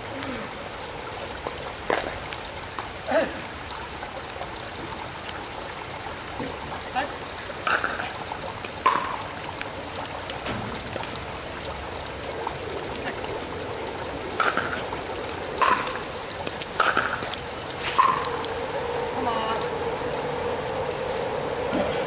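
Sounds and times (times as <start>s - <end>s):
steady rain hiss: 0.0s - 22.0s.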